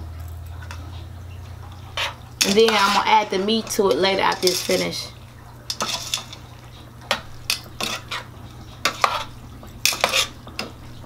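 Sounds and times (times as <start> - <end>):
vegetables sizzling: 0.5 - 11.0
spoon scraping metal pot: 1.7 - 5.1, 5.7 - 6.5, 7.1 - 10.8.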